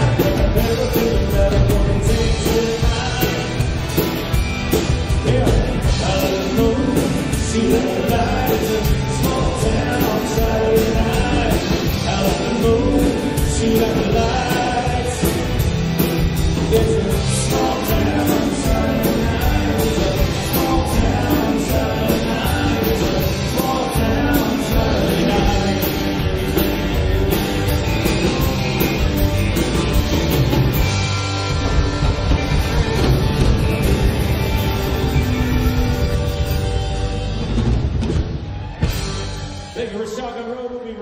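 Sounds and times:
person singing: 0.0 - 3.6, 5.2 - 15.6, 16.6 - 26.3
live rock band playing: 0.0 - 40.2.

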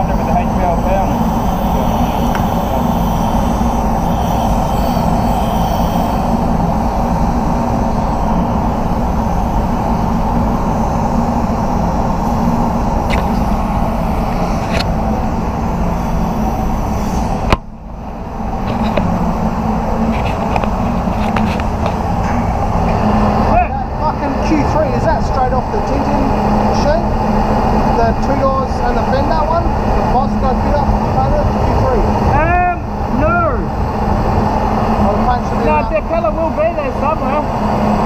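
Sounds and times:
spray gun hissing: 0.0 - 23.4.

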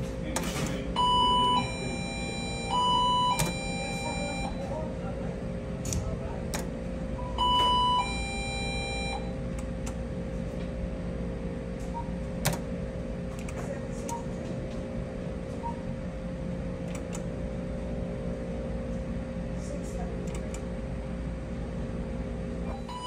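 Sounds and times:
steady machine hum: 0.0 - 23.0
two-note electronic beep: 22.7 - 23.0.

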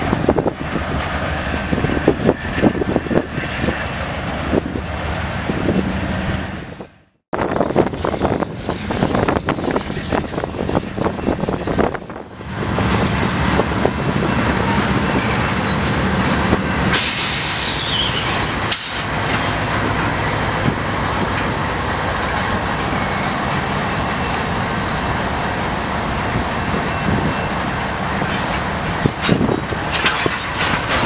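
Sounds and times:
diesel locomotive rumble: 0.0 - 31.0
freight train cars rolling: 0.0 - 31.0
air hiss: 16.9 - 18.0.

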